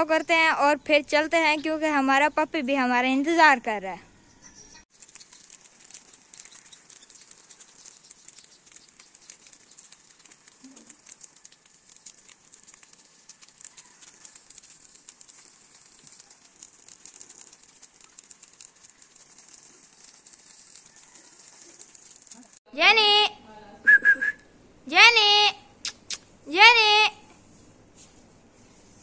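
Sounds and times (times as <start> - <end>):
water pattering on dirt and cage: 4.9 - 22.6
water spraying from garden hose: 4.9 - 22.7.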